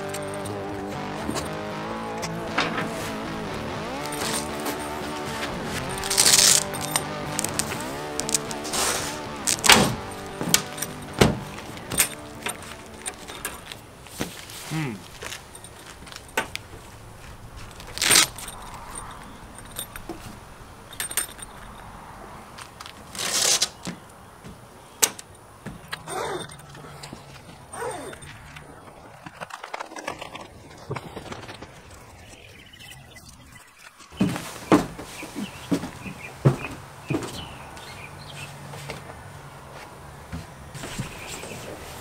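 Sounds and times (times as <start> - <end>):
zipper rasp: 0.0 - 13.7, 23.1 - 23.8, 27.7 - 32.1
clicks and jingles: 0.0 - 39.0
fabric rustling: 3.9 - 20.5.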